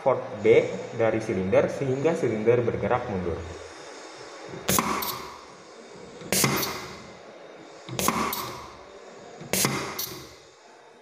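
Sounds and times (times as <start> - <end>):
air exhaust hiss: 0.0 - 11.0
pneumatic cylinder clacking: 4.5 - 8.8, 9.4 - 10.5.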